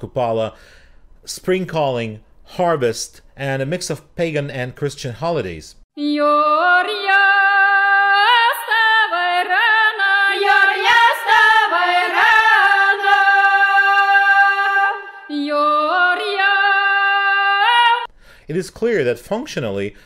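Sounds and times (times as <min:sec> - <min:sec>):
women singing unaccompanied folksong: 0:06.0 - 0:18.1.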